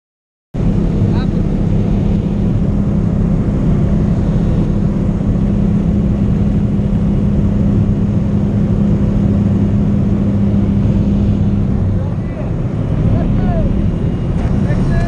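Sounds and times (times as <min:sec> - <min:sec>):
plane engine and propeller drone: 0:00.6 - 0:15.0.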